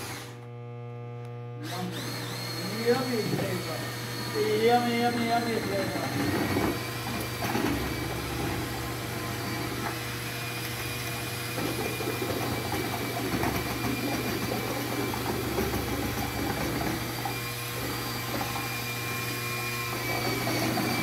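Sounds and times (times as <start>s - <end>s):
cordless drill motor whine: 0.0s - 21.0s
paint churning in bucket: 1.7s - 21.0s.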